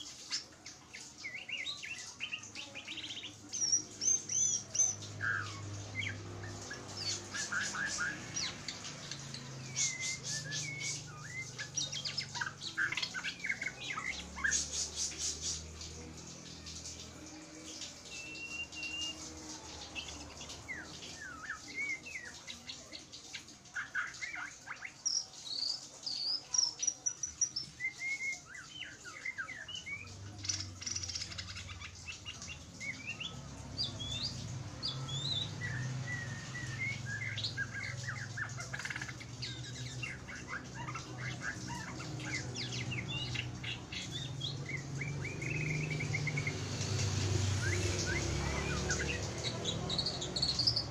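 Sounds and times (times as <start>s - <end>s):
bird singing whistles and trills: 0.0s - 50.9s.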